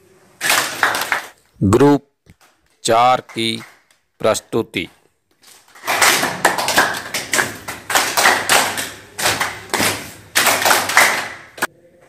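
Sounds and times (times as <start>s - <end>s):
group clapping in rhythm: 0.4s - 11.7s.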